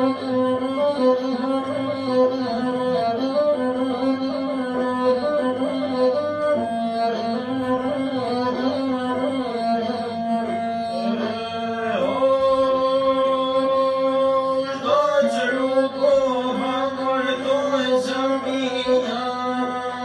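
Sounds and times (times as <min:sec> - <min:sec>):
bowed single-string fiddle: 0:00.0 - 0:20.0
person singing: 0:08.2 - 0:20.0.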